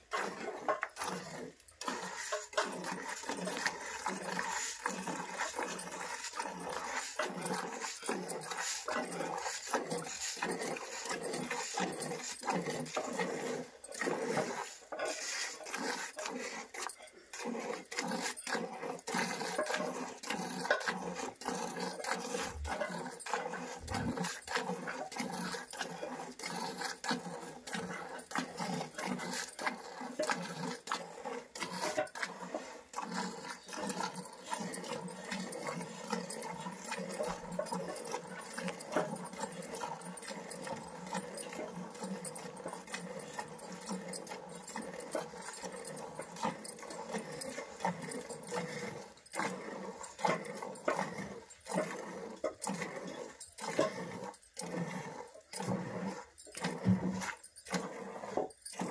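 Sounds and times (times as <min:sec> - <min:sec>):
milk squirting into steel bucket: 0:00.0 - 0:58.9.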